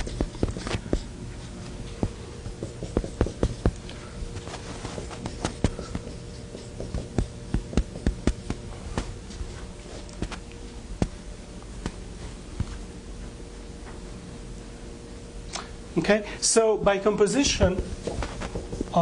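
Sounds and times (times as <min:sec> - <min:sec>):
writing tool tapping on board: 0:00.0 - 0:01.1, 0:01.9 - 0:03.9, 0:05.0 - 0:09.1.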